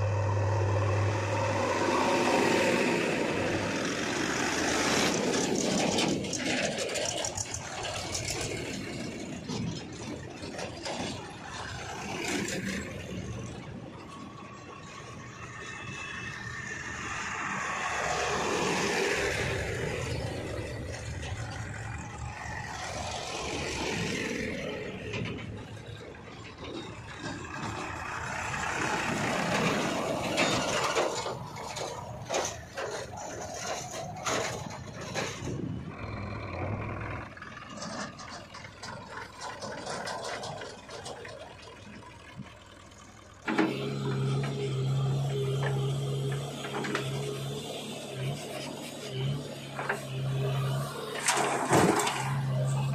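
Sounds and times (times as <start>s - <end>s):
rattling and clatter: 0.0s - 52.9s
tractor engines driving past: 0.0s - 52.9s.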